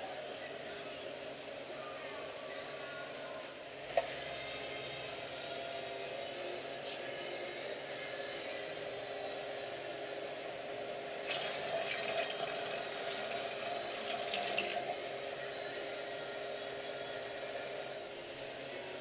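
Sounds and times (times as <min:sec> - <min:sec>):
beer trickling into bucket: 0:11.2 - 0:15.2.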